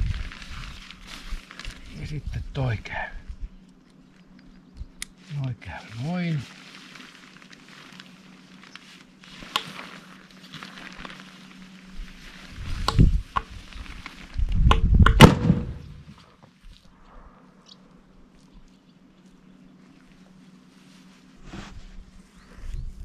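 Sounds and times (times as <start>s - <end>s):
tent fabric rustling: 0.0s - 2.9s, 5.2s - 14.6s, 19.8s - 23.0s.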